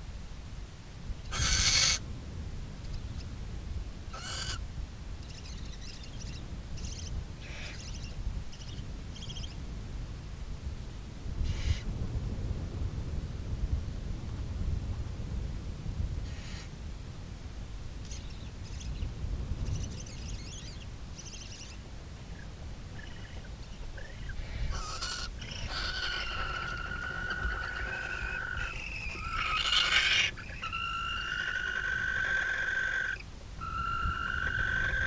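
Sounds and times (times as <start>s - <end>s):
barn owls calling: 1.3s - 2.0s, 4.1s - 4.6s, 5.4s - 9.5s, 11.5s - 11.8s, 19.7s - 35.0s
harsh owl screech: 24.0s - 35.0s.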